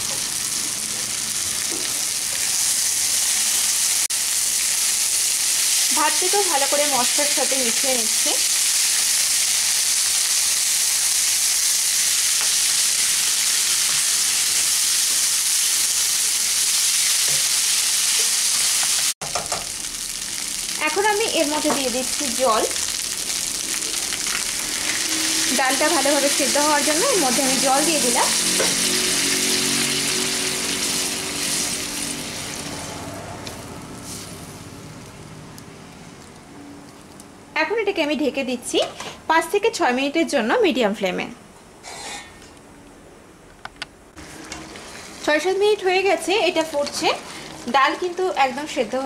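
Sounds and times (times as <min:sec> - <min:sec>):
rice and lentils sizzling in a pan: 0:00.0 - 0:32.8, 0:44.2 - 0:49.0.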